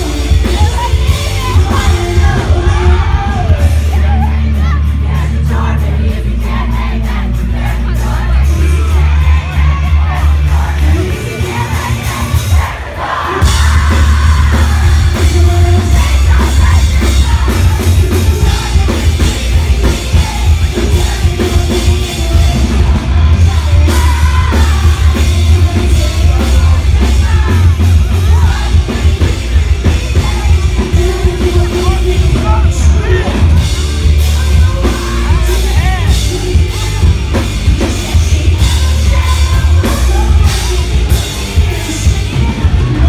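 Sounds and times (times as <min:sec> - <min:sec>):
person singing: 0:00.0 - 0:43.0
rock band playing live: 0:00.0 - 0:43.0.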